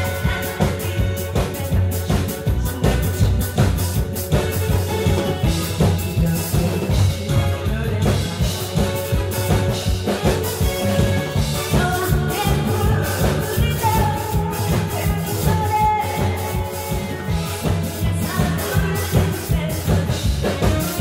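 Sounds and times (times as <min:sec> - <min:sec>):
woman singing through microphone: 0:00.0 - 0:05.2, 0:11.5 - 0:21.0
amplified backing music with drums: 0:00.0 - 0:21.0.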